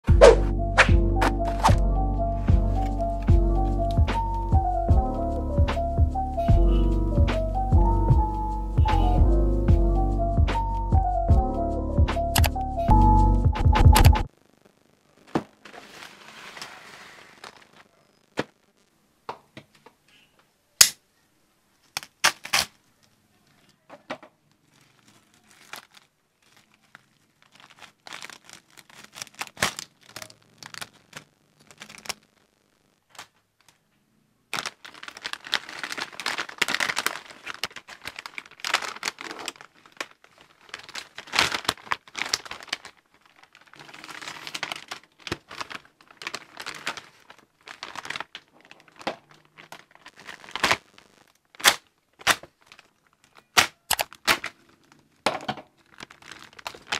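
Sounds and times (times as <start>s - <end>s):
packaging crinkling and tearing: 15.6s - 18.2s, 21.8s - 23.2s, 24.4s - 33.9s, 34.5s - 56.9s.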